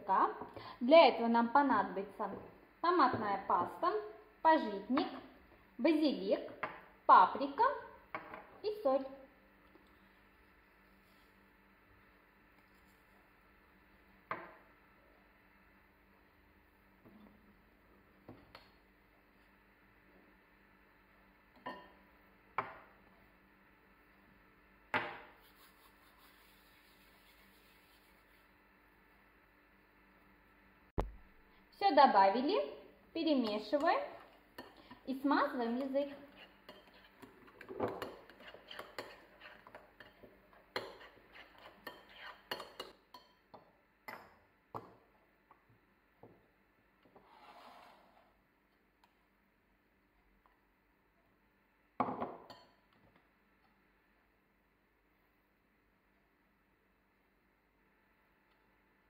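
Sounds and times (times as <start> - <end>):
spoon clinking against a bowl: 36.7 - 43.4.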